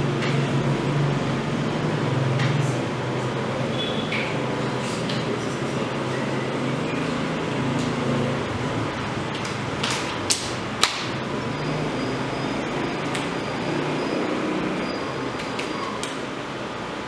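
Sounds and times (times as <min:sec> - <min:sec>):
steady room hum: 0:00.0 - 0:17.0.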